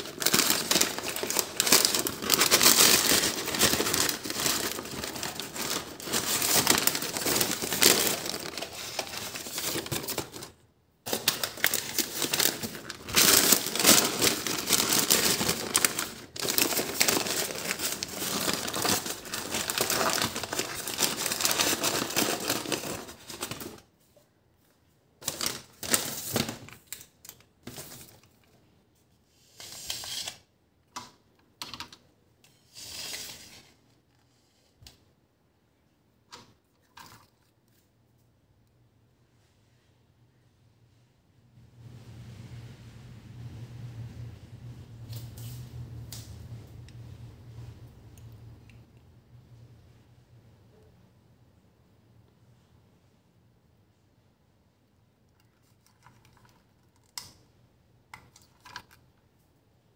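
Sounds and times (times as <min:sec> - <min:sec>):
paper bag crinkling and rustling: 0:00.0 - 0:23.9, 0:25.2 - 0:28.5.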